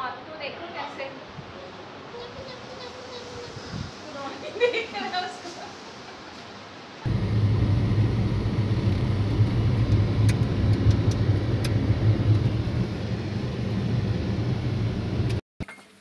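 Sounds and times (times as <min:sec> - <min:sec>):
car engine and road noise: 0:07.0 - 0:15.4.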